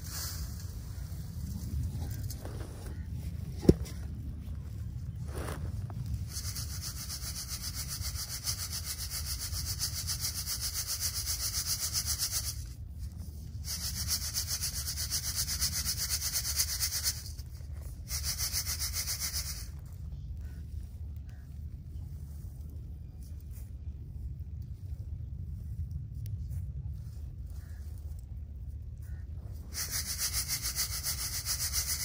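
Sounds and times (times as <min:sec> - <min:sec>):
sieve shaking grain rasping: 0:05.3 - 0:12.7, 0:13.5 - 0:20.6, 0:29.1 - 0:32.0.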